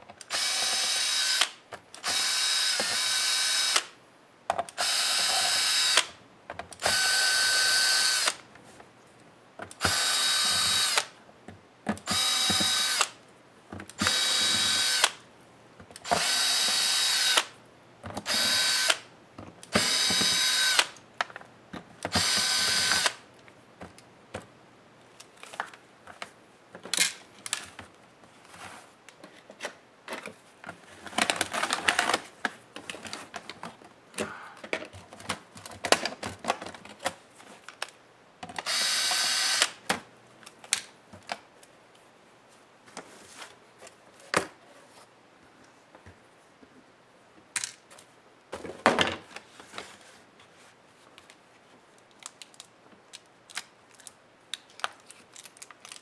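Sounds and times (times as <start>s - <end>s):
cordless drill whining: 0.3s - 3.9s, 4.8s - 6.1s, 6.8s - 8.4s, 9.8s - 11.1s, 12.1s - 13.1s, 14.0s - 15.2s, 16.0s - 17.5s, 18.3s - 19.0s, 19.7s - 20.9s, 22.1s - 23.2s, 38.6s - 39.8s.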